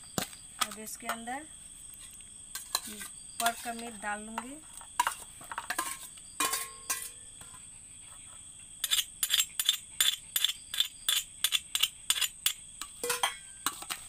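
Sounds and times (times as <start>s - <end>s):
utensil striking steel bowl: 5.0s - 7.2s, 8.8s - 14.0s
ringing clinks of steel bowls: 5.8s - 7.2s, 13.0s - 13.8s.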